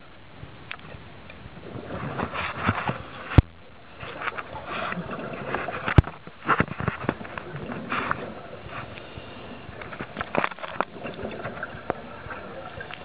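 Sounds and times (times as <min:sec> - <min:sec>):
underwater bubbles: 0:00.0 - 0:13.0
hissing regulator breaths: 0:08.0 - 0:10.0.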